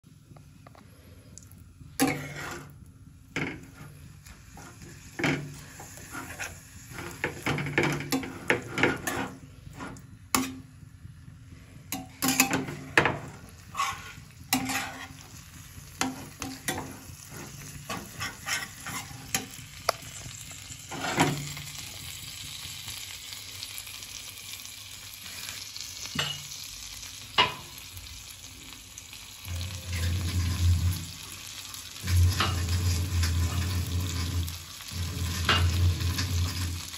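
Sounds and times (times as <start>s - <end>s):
frying sizzle: 0.1s - 36.9s
steel spatula scraping a frying pan: 2.0s - 2.8s, 3.4s - 10.7s, 11.9s - 19.6s, 20.9s - 21.6s, 29.5s - 31.4s, 32.0s - 36.9s.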